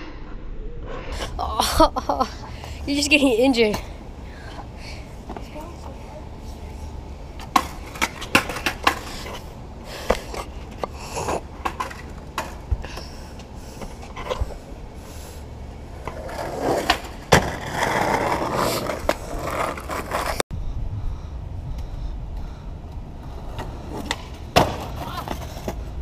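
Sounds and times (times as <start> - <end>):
skateboard wheels rolling and scraping: 2.1 - 20.4, 21.7 - 26.0
skateboard clacking on asphalt: 7.3 - 14.5, 15.8 - 20.4, 22.3 - 26.0
skateboard slap: 7.4 - 9.4, 16.1 - 20.4, 23.6 - 25.8.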